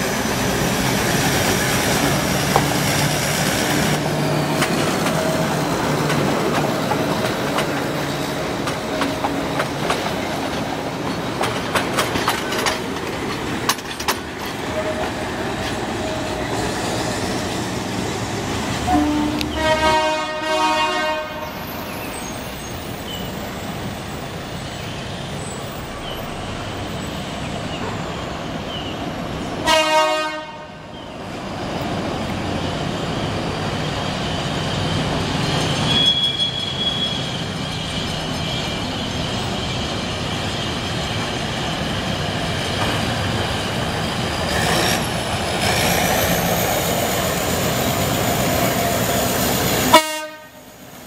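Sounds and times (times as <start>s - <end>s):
locomotive engine rumbling: 0.0s - 51.0s
locomotive air horn blasts: 18.9s - 21.6s, 29.6s - 30.9s, 49.9s - 50.6s.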